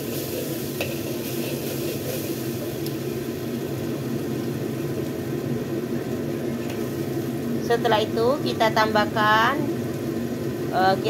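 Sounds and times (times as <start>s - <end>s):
metal spatula scraping a wok: 0.0s - 2.6s
hiss: 0.0s - 3.2s
sauce stirring in a wok: 0.0s - 5.0s
steady low hum: 0.0s - 11.0s
spatula tapping a wok: 0.2s - 3.0s.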